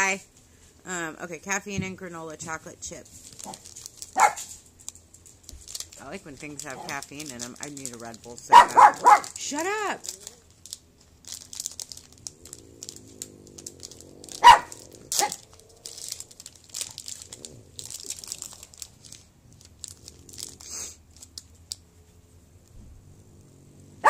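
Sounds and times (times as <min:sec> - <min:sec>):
wrapper crinkling and tearing: 0:02.8 - 0:22.1
dog barks: 0:04.2 - 0:04.5, 0:08.5 - 0:09.4, 0:14.4 - 0:15.4.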